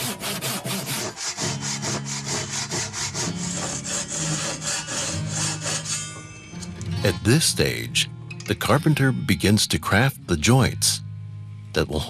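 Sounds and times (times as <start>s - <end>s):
hand saw cutting wood: 0.0s - 6.3s.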